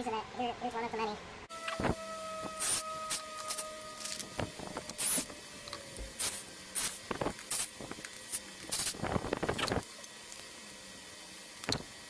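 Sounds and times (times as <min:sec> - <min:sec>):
drill bursts into wood: 0:01.6 - 0:04.2.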